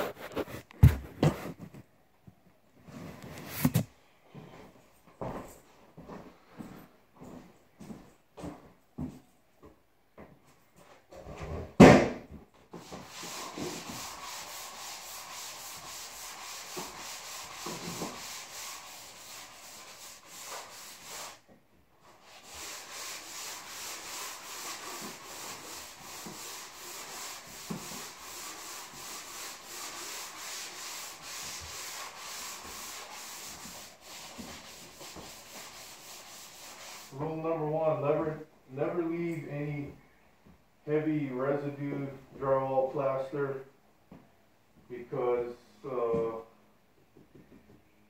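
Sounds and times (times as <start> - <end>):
hand sanding drywall: 0.0 - 1.8, 12.7 - 39.1.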